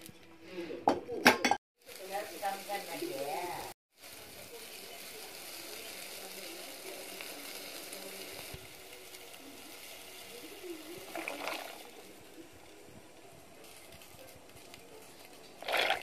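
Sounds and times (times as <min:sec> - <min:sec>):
water boiling in a pot: 0:01.8 - 0:16.0
pasta splashing into water: 0:11.0 - 0:11.9, 0:15.6 - 0:16.0.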